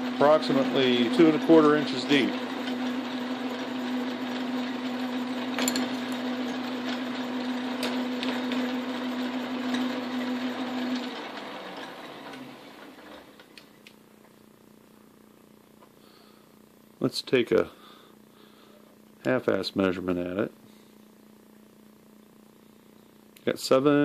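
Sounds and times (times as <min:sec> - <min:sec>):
metal lathe motor hum: 0:00.0 - 0:13.4.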